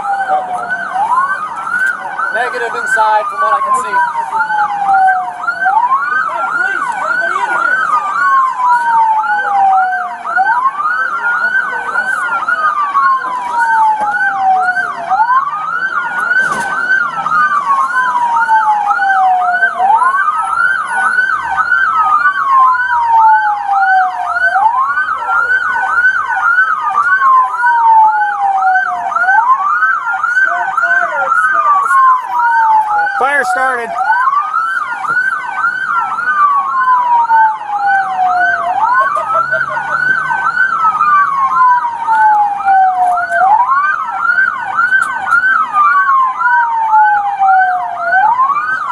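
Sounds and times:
siren wailing: 0:00.0 - 0:48.9
siren yelping: 0:00.0 - 0:48.9.

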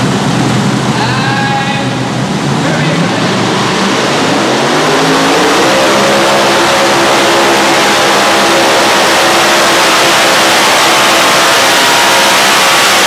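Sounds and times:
tractor engines at full throttle: 0:00.0 - 0:13.0.

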